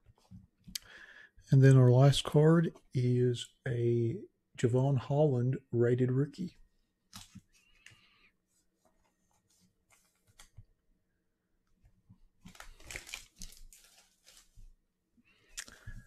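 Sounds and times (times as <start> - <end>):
foil pack crinkling: 12.4 - 14.6.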